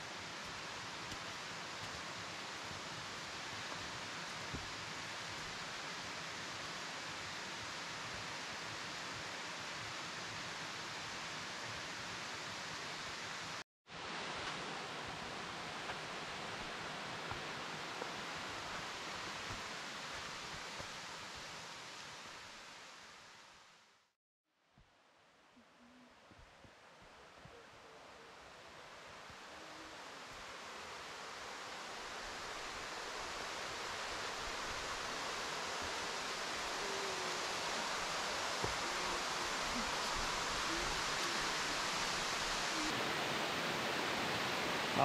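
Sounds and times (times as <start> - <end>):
waterfall and creek rushing: 0.0 - 23.8, 26.7 - 45.0
waterfall rushing: 28.1 - 45.0.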